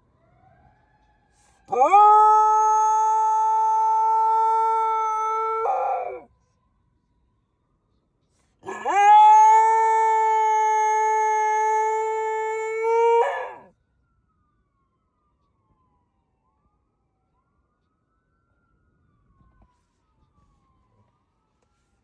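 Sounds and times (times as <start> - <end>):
dog howling: 1.7 - 6.3, 8.6 - 13.7.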